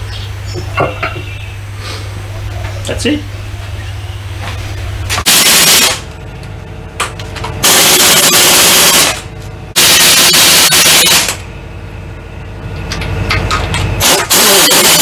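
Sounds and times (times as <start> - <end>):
low steady hum: 0.0 - 5.2, 5.8 - 9.8, 10.8 - 14.0
pneumatic impact wrench bursts: 5.2 - 6.0, 7.6 - 9.2, 9.8 - 11.4, 14.0 - 15.0.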